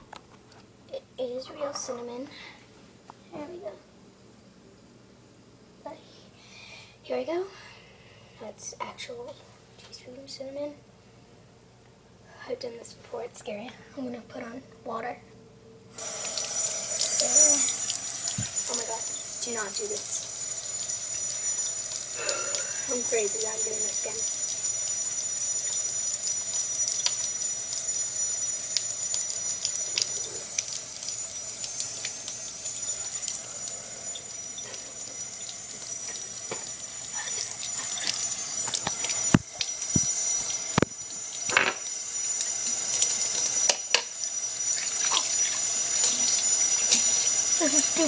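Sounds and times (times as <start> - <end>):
water running from a tap: 16.0 - 48.0.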